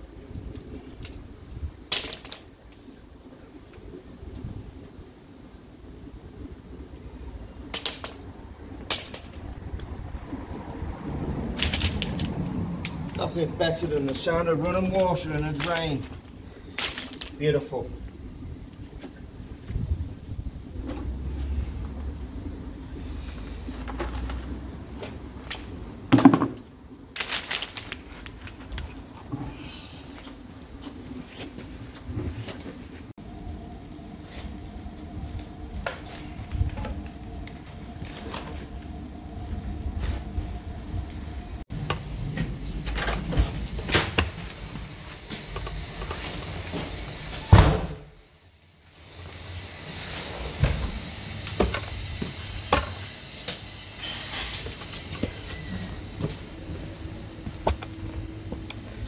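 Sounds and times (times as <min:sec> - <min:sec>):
low outdoor rumble: 0:00.0 - 0:59.0
plastic rods clattering: 0:16.8 - 0:17.4, 0:27.2 - 0:28.9
low steady hum: 0:28.4 - 0:53.4.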